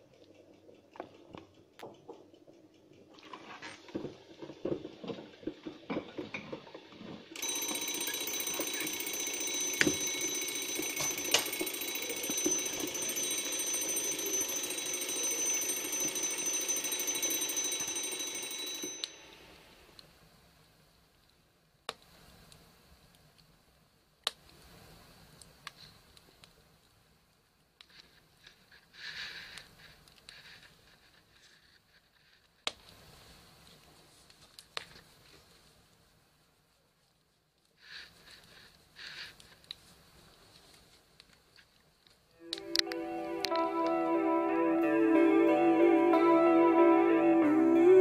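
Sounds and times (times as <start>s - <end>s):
kitchen timer ticking: 7.4s - 19.4s
timer bell ringing: 7.4s - 19.6s.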